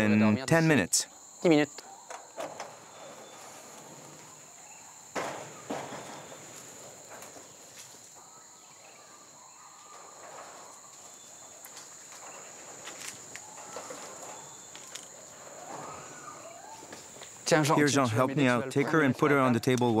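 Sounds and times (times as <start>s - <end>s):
insects droning high-pitched: 0.0s - 20.0s
faint rustling: 1.8s - 17.6s.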